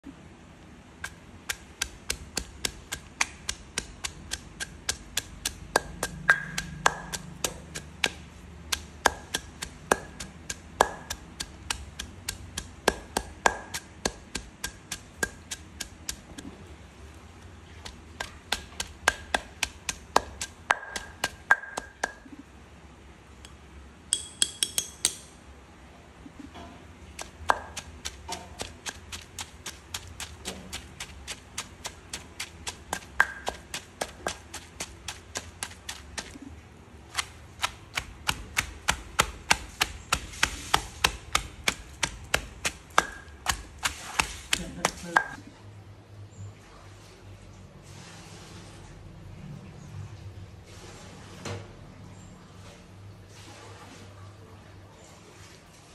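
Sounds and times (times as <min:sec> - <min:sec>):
pestle pounding in stone mortar: 0:01.0 - 0:16.4, 0:17.8 - 0:22.3, 0:27.1 - 0:36.4, 0:37.1 - 0:45.4.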